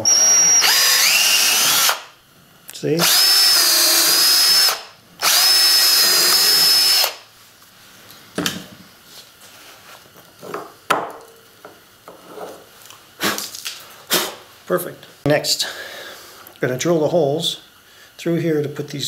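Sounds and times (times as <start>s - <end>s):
cordless drill whining: 0.0s - 2.1s, 3.0s - 7.2s.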